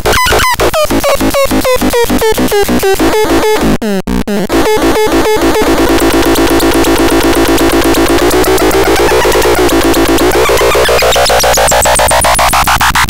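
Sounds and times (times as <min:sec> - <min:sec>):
synthesizer buzzing pulse: 0:00.0 - 0:13.0
synthesizer drone: 0:00.0 - 0:13.0
synthesizer chirp pulses: 0:00.1 - 0:13.0.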